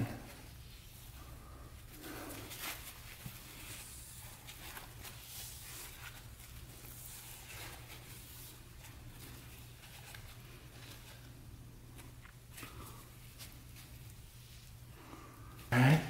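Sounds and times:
low steady hum: 0.0 - 16.0
scraping and wiping paint off plastic: 0.2 - 15.2.

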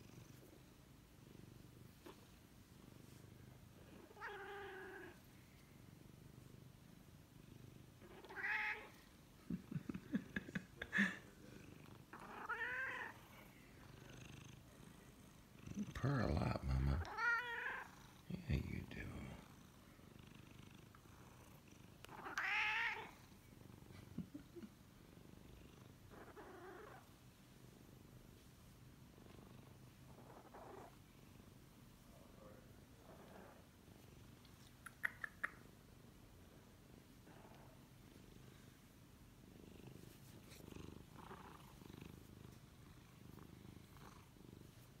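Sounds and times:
cat purring: 0.0 - 45.0
cat meowing: 4.1 - 5.2, 8.0 - 8.9, 12.2 - 13.1, 17.0 - 17.9, 22.1 - 23.1.

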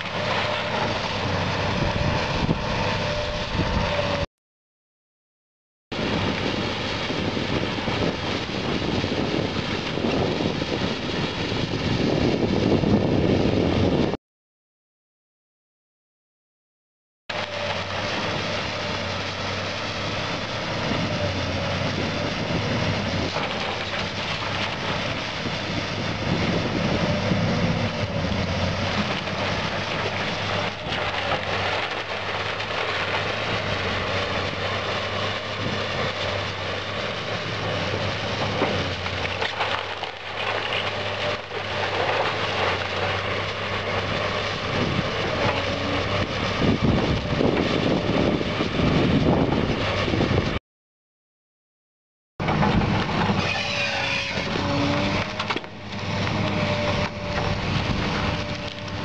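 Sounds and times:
excavator diesel engine running: 0.0 - 4.3, 17.3 - 50.6, 52.4 - 59.0
wood splintering: 27.9 - 46.5, 52.4 - 59.0.

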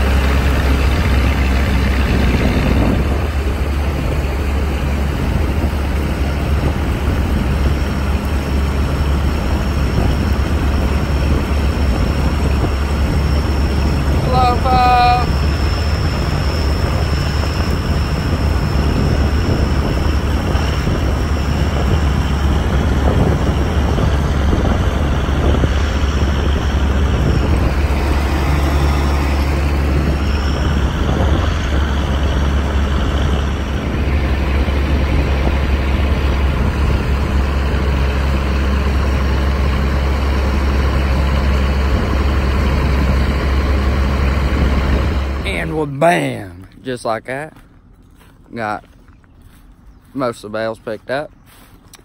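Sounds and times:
tractor diesel engine rumbling: 0.0 - 52.0.

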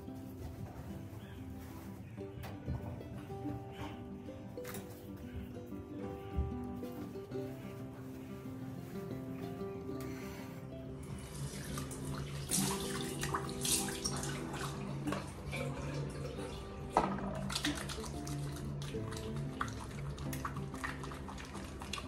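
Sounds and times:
background music: 0.0 - 22.0
tap water running into sink: 11.4 - 22.0
splashing water on face: 11.7 - 22.0.

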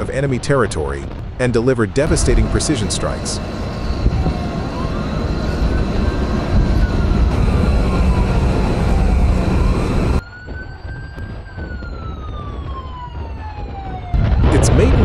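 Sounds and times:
loud low rumble: 2.0 - 10.2
wailing siren: 2.1 - 15.0.

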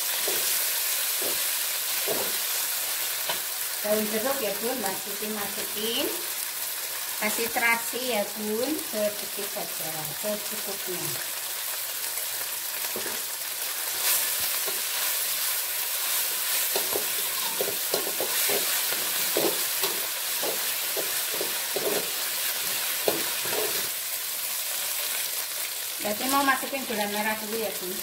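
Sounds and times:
paste sizzling in hot oil: 0.0 - 28.0
metal spatula scraping a wok: 13.9 - 23.9.

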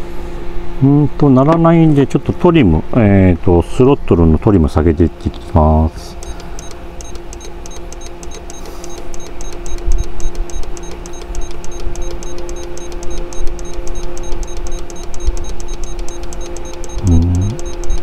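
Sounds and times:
transmitter beeping rapidly: 6.2 - 18.0
steady low tone: 16.3 - 18.0.

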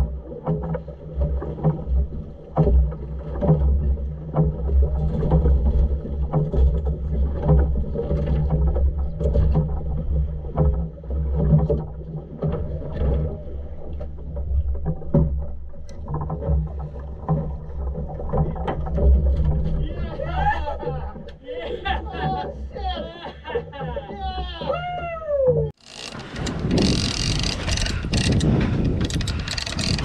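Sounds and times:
boat engine humming: 0.0 - 30.0
fish thrashing against hull: 0.0 - 30.0.

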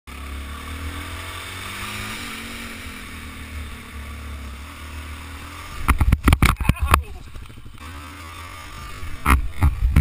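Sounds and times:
motorcycle engine running: 0.1 - 10.0
wind rumbling on camera: 5.7 - 7.9, 8.6 - 10.0.

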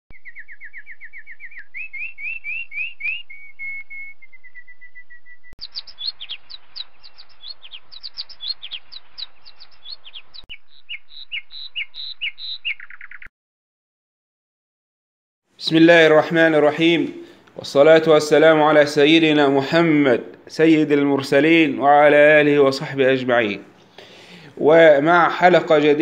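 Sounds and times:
birds chirping and trilling: 0.1 - 13.3.

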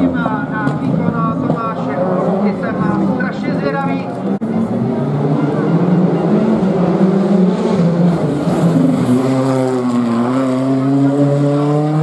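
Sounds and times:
rally car engine accelerating: 4.2 - 12.0.

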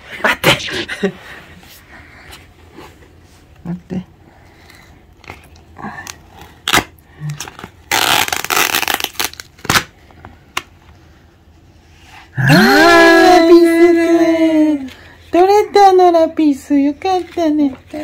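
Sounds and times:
masking tape ripping: 6.3 - 9.9
person calling out: 12.4 - 14.9.

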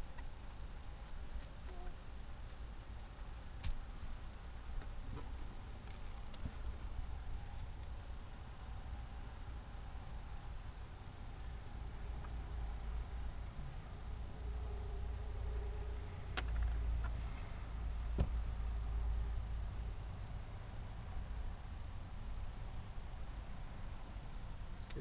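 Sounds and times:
steady low rumble: 0.0 - 25.0
cricket chirps: 11.4 - 23.4, 24.2 - 25.0.

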